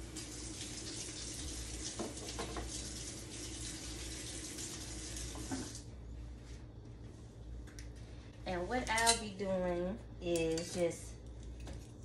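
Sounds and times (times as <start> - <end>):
faucet running water: 0.0 - 5.9.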